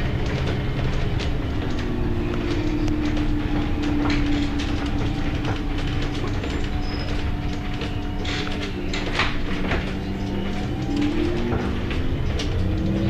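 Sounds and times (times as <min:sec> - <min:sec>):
bus engine and road rumble: 0:00.0 - 0:13.0
constant hum: 0:00.0 - 0:13.0
small rattles and clicks: 0:00.0 - 0:13.0.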